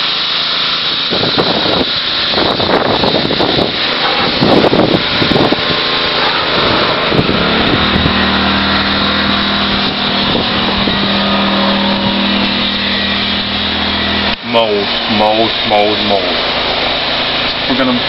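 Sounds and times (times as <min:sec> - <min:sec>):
loud rushing water hiss: 0:00.0 - 0:18.0
pressure washer engine running: 0:00.0 - 0:18.0.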